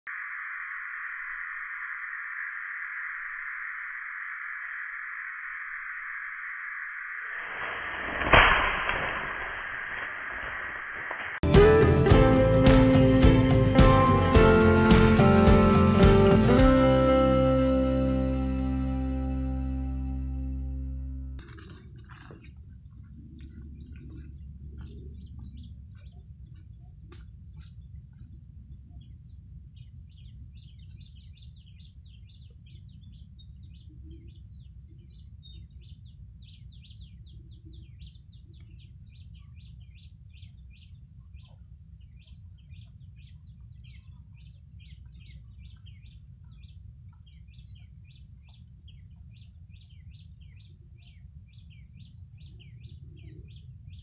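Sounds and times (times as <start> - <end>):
small birds chirping: 21.4 - 54.0.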